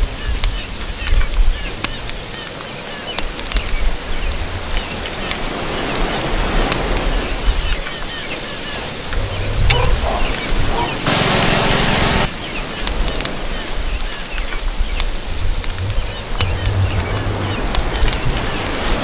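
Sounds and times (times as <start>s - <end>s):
wind rumbling on microphone: 0.0s - 19.0s
high chirps and ticks: 14.4s - 18.8s.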